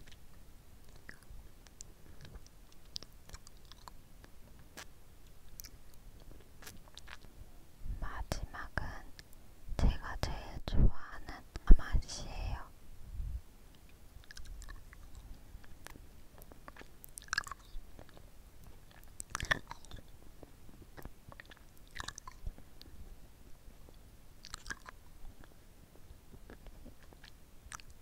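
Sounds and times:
licking and sucking lollipop: 0.8s - 7.3s, 13.7s - 20.1s, 21.0s - 22.9s, 24.4s - 25.6s.

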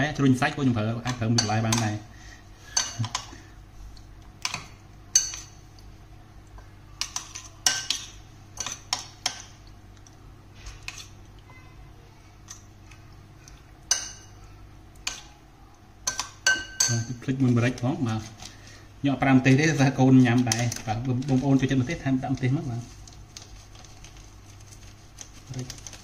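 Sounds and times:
metal spoon clinking in bowl: 16.0s - 17.2s.

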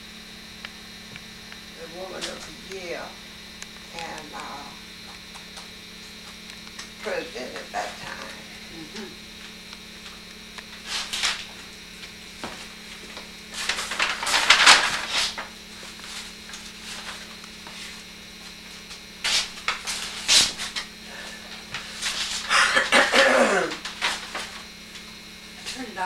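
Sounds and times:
steady low hum: 0.0s - 26.0s
rustling and scraping objects: 5.0s - 25.9s.

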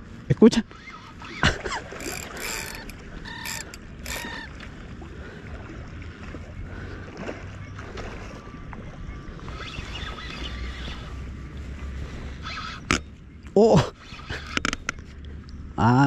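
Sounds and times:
reel squeals: 0.6s - 4.7s, 9.2s - 11.3s, 12.3s - 13.2s, 13.8s - 15.2s
fishing reel gears grinding: 0.7s - 4.5s.

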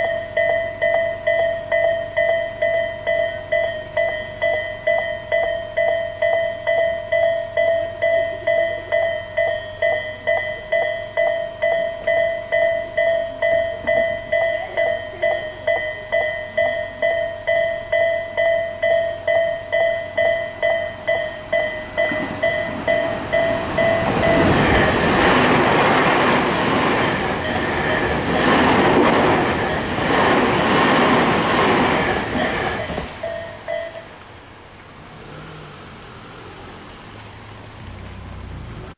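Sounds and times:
level crossing warning bell: 0.0s - 34.4s
train passing loudly: 0.0s - 34.4s.

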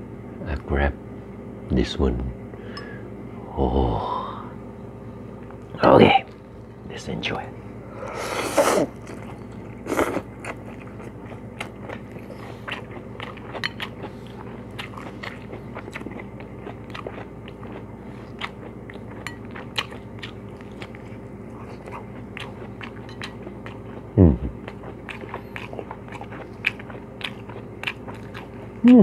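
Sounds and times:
close chewing with mouth clicks: 9.0s - 29.0s.

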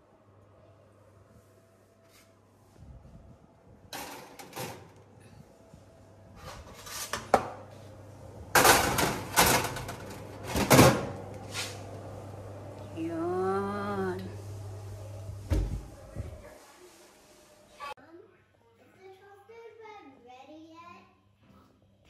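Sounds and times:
metal baking trays clattering: 3.9s - 5.0s, 8.5s - 11.7s
low steady hum: 7.6s - 17.7s.

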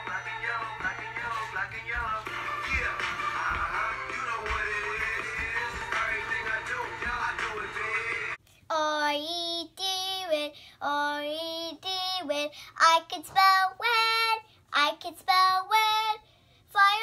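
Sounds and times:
recorded music: 0.0s - 8.4s
girl singing unaccompanied: 8.4s - 17.0s.

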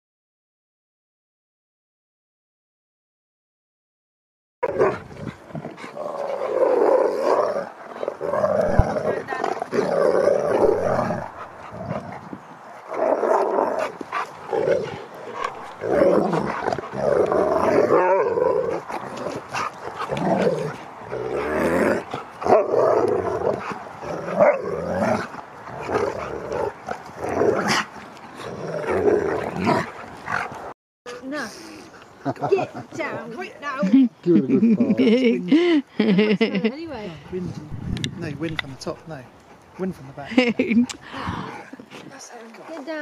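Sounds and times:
huskies play-fighting and vocalising: 4.6s - 33.8s, 38.5s - 43.0s.

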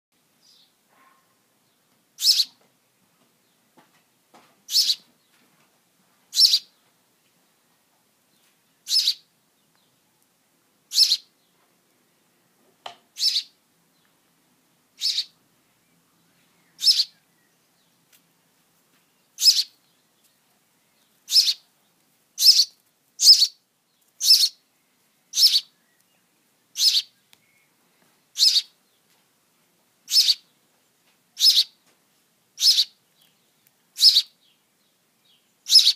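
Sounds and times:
nestling begging chirps: 2.2s - 2.6s, 4.7s - 5.0s, 6.4s - 6.7s, 8.9s - 9.2s, 10.9s - 11.3s, 13.2s - 13.5s, 15.0s - 15.4s, 16.7s - 17.3s, 19.4s - 19.8s, 21.3s - 21.6s, 22.4s - 23.6s, 24.2s - 24.6s, 25.3s - 26.0s, 26.8s - 27.7s, 28.4s - 28.7s, 30.1s - 30.4s, 31.4s - 31.8s, 32.6s - 33.0s, 34.0s - 34.3s, 35.7s - 35.9s.

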